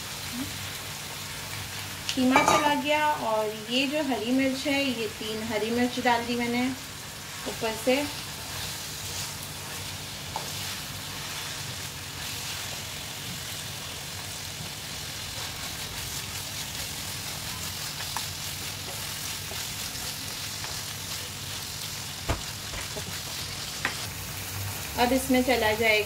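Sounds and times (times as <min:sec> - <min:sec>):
meat sizzling in frying pan: 0:00.0 - 0:26.0
spatula stirring in pan: 0:07.2 - 0:12.9, 0:14.8 - 0:21.8.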